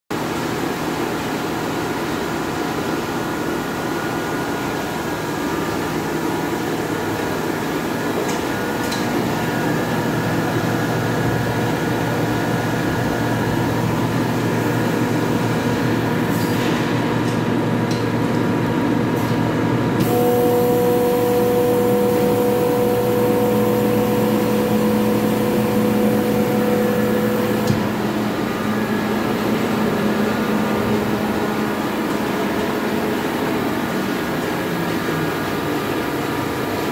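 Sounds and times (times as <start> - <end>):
air compressor humming: 8.0 - 36.2
high steady whine: 20.0 - 34.0.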